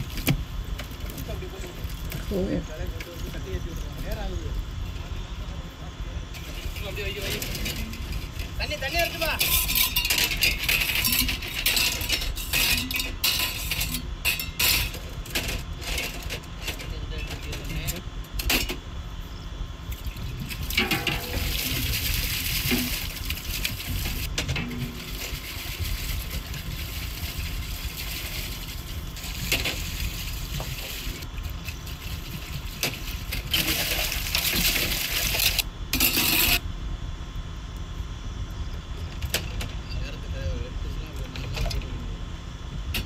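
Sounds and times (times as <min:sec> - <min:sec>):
water splashing and sloshing: 0:20.0 - 0:35.7.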